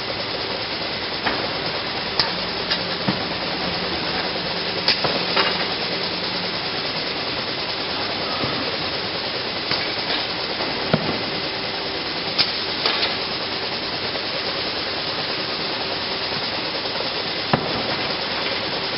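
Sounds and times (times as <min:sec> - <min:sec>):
conveyor machine running: 0:00.0 - 0:18.9.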